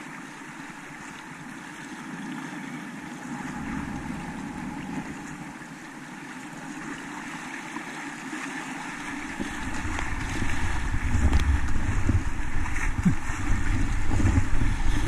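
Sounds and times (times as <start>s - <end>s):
rushing whitewater: 0.0s - 15.0s
low rumble: 3.2s - 7.1s, 9.0s - 15.0s.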